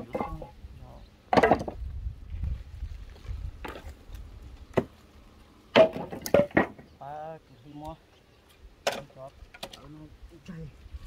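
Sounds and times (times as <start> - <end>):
wooden knocks of logs: 0.0 - 0.6, 1.3 - 1.9, 3.1 - 5.0, 5.7 - 7.0, 8.8 - 9.9.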